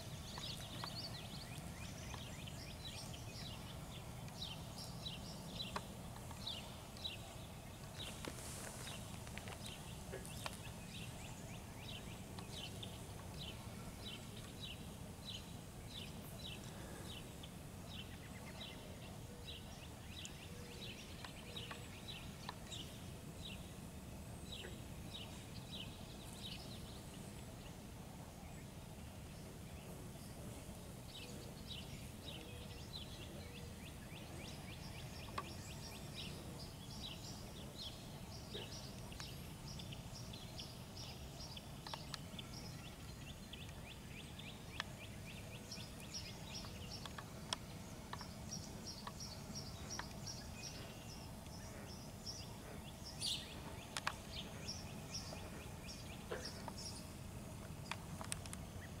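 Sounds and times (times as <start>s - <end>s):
small birds singing: 0.0s - 59.0s
faint clicks: 45.7s - 57.0s, 57.6s - 58.7s.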